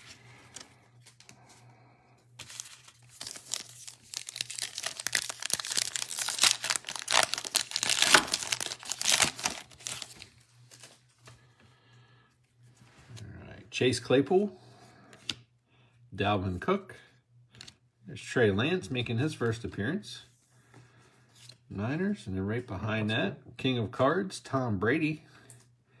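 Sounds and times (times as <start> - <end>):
foil wrapper crinkling: 2.4 - 10.9.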